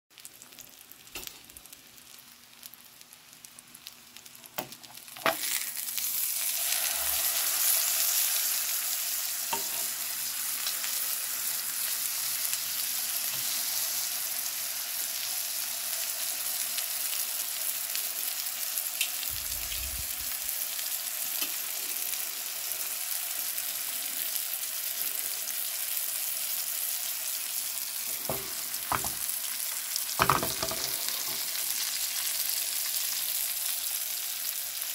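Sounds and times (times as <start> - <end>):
fish frying in butter: 0.2 - 34.9
knocks on pan: 28.2 - 29.2, 30.2 - 31.0.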